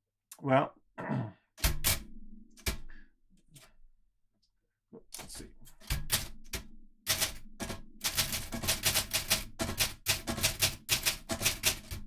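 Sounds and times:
manual typewriter key clacks: 0:05.2 - 0:12.0.

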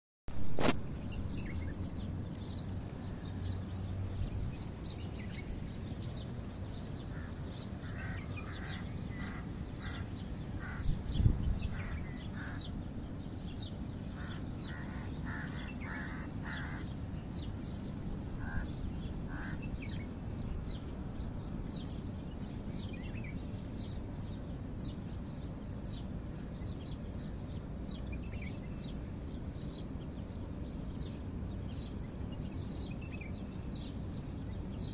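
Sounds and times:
birds chirping: 0:00.3 - 0:34.9
low background noise: 0:00.3 - 0:34.9
harsh lower bird calls: 0:06.6 - 0:20.2.

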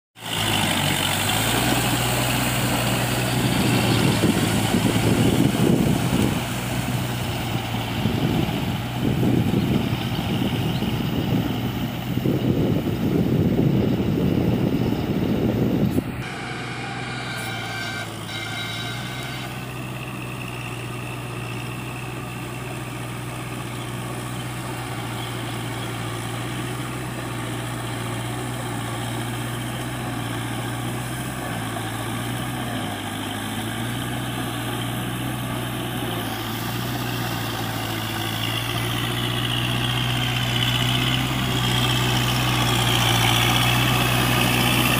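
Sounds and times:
loud rough noise: 0:00.2 - 0:11.5, 0:12.2 - 0:20.7
tractor diesel engine running: 0:00.2 - 0:44.9.

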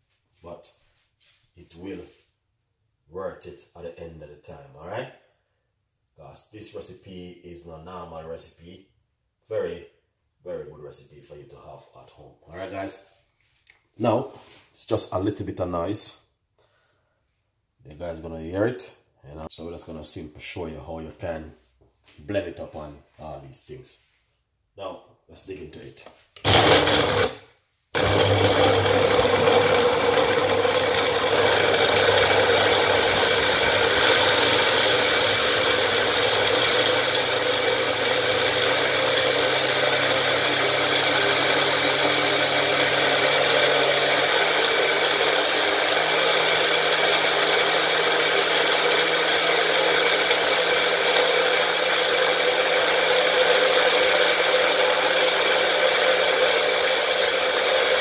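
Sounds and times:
blender motor running: 0:26.4 - 0:27.4, 0:28.0 - 0:58.0.

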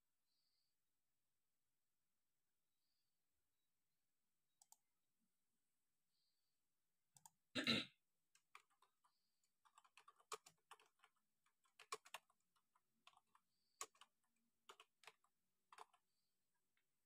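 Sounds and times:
keyboard typing clicks: 0:08.4 - 0:16.0.

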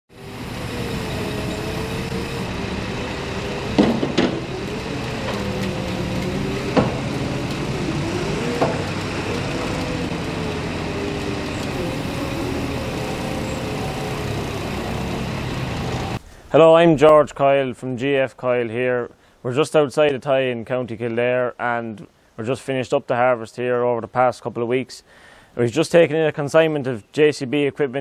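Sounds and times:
diesel engine revving: 0:00.1 - 0:16.2
sharp knocks: 0:03.7 - 0:04.5, 0:06.6 - 0:07.6, 0:08.6 - 0:09.0.

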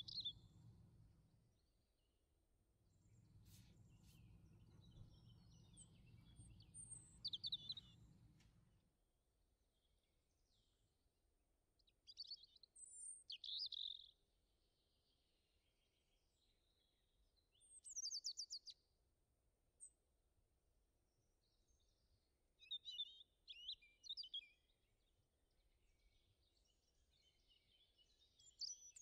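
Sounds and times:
faint bird chirps: 0:00.0 - 0:00.8, 0:03.0 - 0:08.4, 0:12.1 - 0:14.2
faint low rumble: 0:02.9 - 0:08.8.

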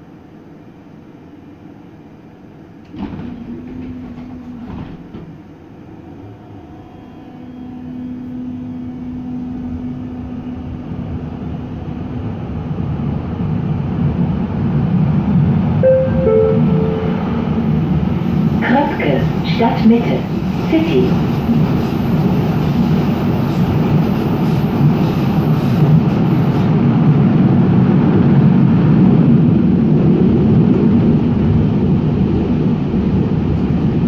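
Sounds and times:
train rumble and hum: 0:00.0 - 0:34.0
two-note chime: 0:15.8 - 0:17.8.

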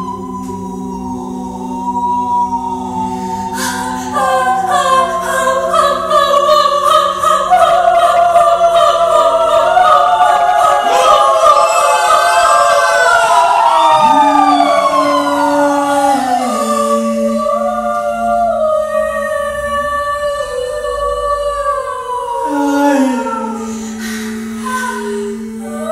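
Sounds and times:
higher voices howling glides: 0:00.0 - 0:25.9
low male voice drone: 0:07.6 - 0:25.9.

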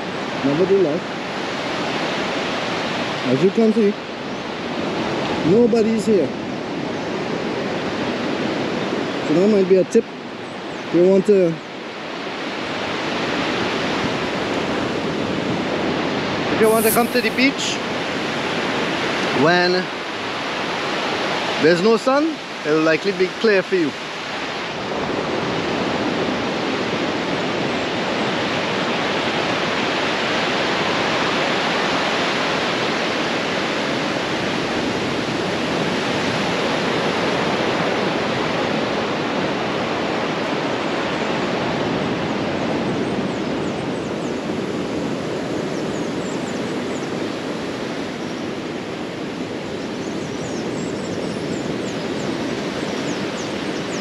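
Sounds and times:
surf breaking on beach: 0:16.5 - 0:17.9.

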